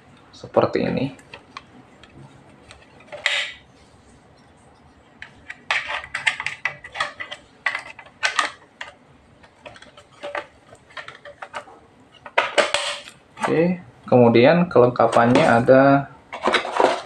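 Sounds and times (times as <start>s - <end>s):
plastic parts clicking and knocking: 5.2s - 13.6s, 16.3s - 17.0s.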